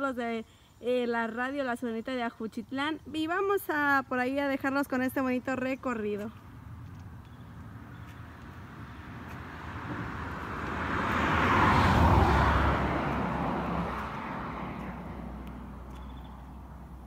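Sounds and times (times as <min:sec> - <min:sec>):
vehicle passing by: 0:06.4 - 0:17.0.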